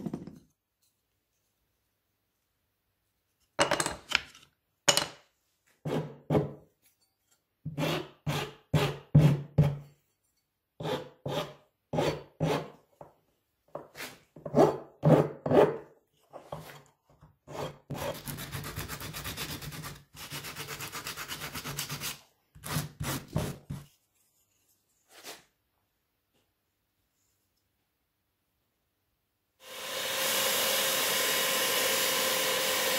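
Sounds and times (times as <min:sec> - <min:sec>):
hand file rasping on wood: 0:07.7 - 0:09.4, 0:10.8 - 0:12.7.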